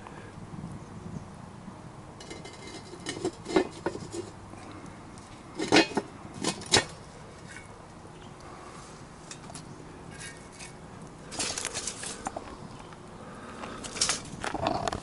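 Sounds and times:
pot lid clanking against pot: 0:05.6 - 0:06.9.

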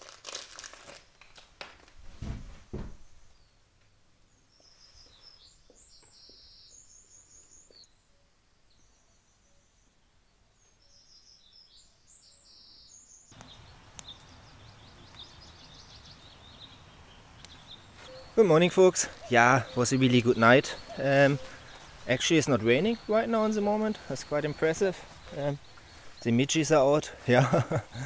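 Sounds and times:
outdoor background hiss: 0:00.2 - 0:28.0
high trilling birdsong: 0:03.0 - 0:28.0
songbird twittering with trills: 0:04.5 - 0:08.0, 0:10.5 - 0:28.0.

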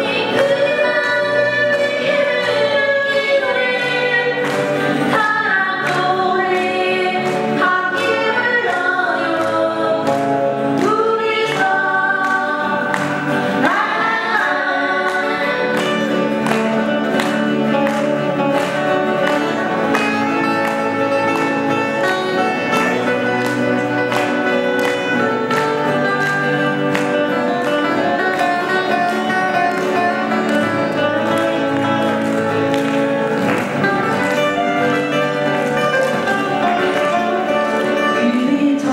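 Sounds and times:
person singing: 0:00.0 - 0:16.6, 0:36.4 - 0:38.9
acoustic guitars strummed and picked: 0:00.0 - 0:38.9.

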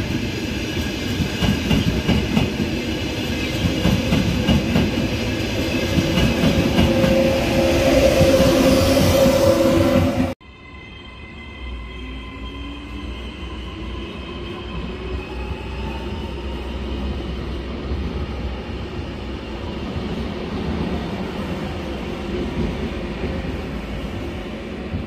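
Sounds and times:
train wheels rumbling on rail: 0:00.0 - 0:10.4, 0:13.8 - 0:25.0.

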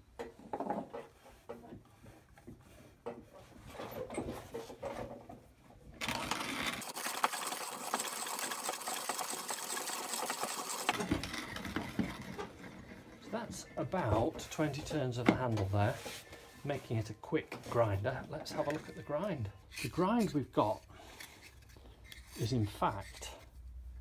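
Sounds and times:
coffee beans crunching in grinder: 0:06.0 - 0:11.8
coffee grinder clicks and rattles: 0:06.0 - 0:12.2.

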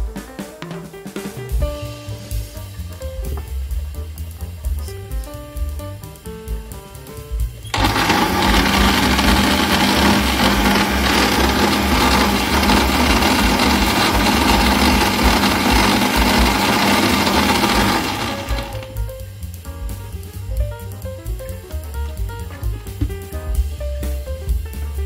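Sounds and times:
blender running: 0:07.7 - 0:19.0.

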